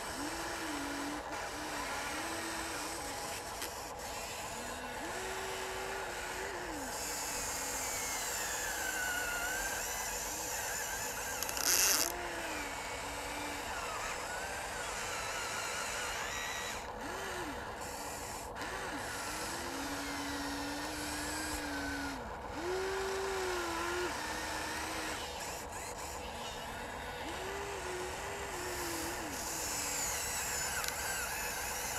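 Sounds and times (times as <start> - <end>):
electric motors whining: 0.0 - 31.9
loud rasp: 0.0 - 31.9.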